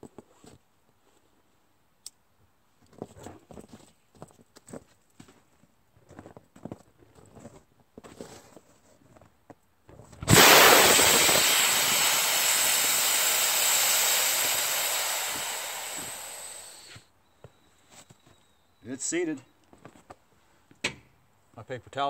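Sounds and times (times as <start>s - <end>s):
tire ignition whump: 10.2s - 17.0s
loud air hiss: 10.3s - 17.0s.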